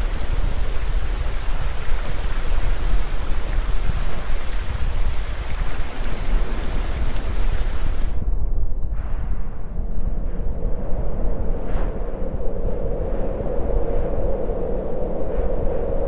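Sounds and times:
falling water rushing: 0.0s - 8.2s.

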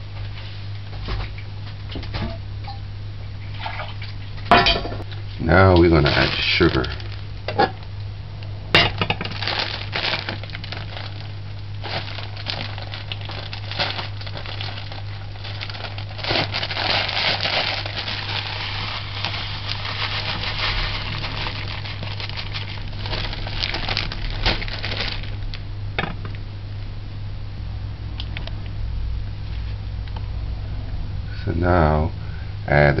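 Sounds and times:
plastic bag rustling: 5.4s - 7.8s, 8.9s - 25.6s.

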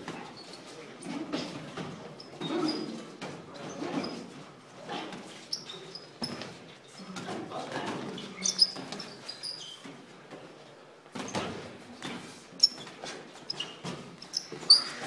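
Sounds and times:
shoes squeaking on gym floor: 0.0s - 10.6s, 11.2s - 15.0s.

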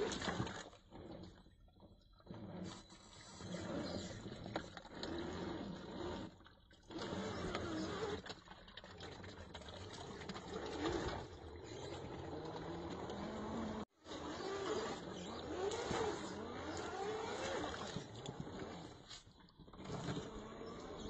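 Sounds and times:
electric motor and gears whining: 2.3s - 8.3s, 10.3s - 21.0s
light water splashing: 6.3s - 13.7s.

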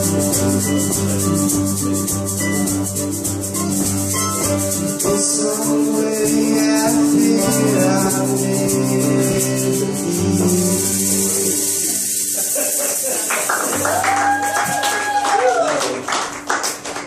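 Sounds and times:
low bass notes: 0.0s - 12.4s
strummed acoustic guitar: 0.0s - 13.9s
shaker rattle: 0.0s - 14.4s.

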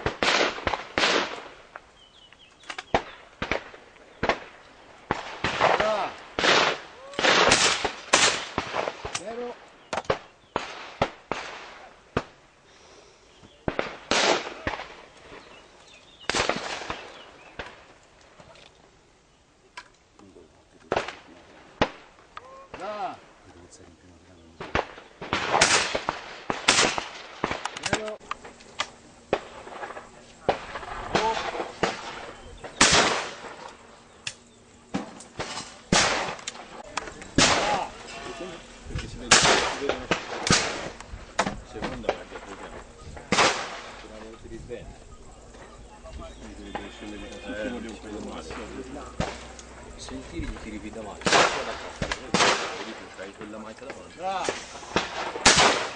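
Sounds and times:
shotgun shots echoing: 0.0s - 1.8s, 2.8s - 12.4s, 13.6s - 15.5s, 16.2s - 17.8s, 24.6s - 38.5s, 39.1s - 44.4s, 48.4s - 49.8s, 50.6s - 55.9s
loud shotgun reports: 35.8s - 45.6s, 46.2s - 55.9s.

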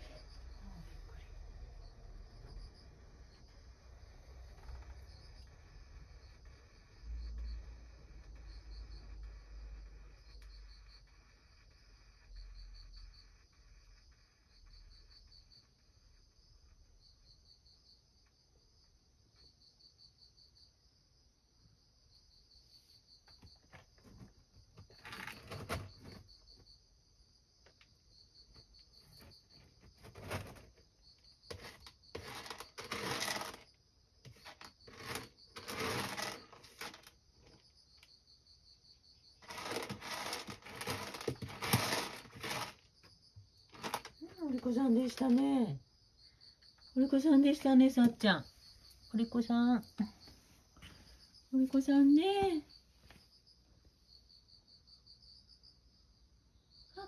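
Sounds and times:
cat scratching in pellet litter: 24.1s - 26.2s, 29.0s - 30.8s, 31.5s - 37.6s, 39.4s - 42.9s, 43.7s - 45.5s.

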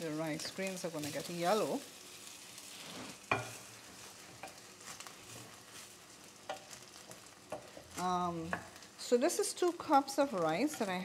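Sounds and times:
rice sizzling in a pot: 0.0s - 11.0s
wooden spoon scraping a pot: 2.7s - 8.8s.

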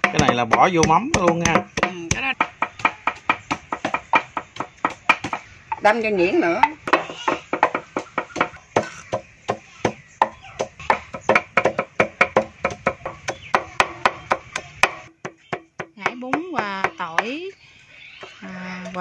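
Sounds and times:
pestle pounding: 0.0s - 6.0s, 6.6s - 17.4s.

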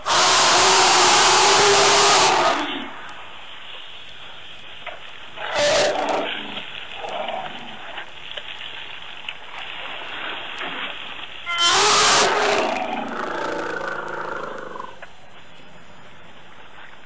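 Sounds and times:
elephant roaring: 0.0s - 3.0s, 5.4s - 8.0s, 11.5s - 15.0s
low elephant calls: 0.0s - 3.0s, 5.4s - 8.0s, 11.5s - 15.0s.

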